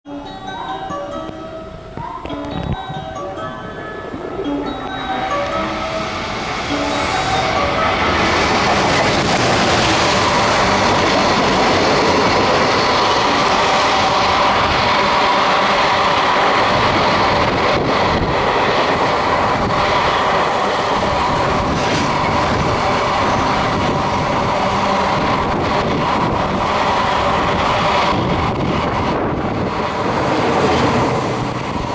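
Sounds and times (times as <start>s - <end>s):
electric locomotive passing: 0.1s - 31.9s
train wheels rumbling on rails: 1.9s - 31.9s.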